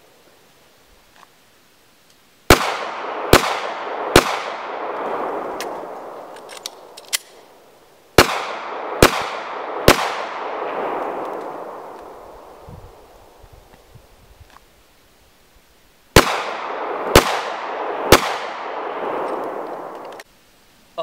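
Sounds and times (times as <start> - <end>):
pistol shots with echo: 2.5 - 5.6, 8.2 - 11.8, 16.2 - 20.0
faint clicks: 19.3 - 20.3.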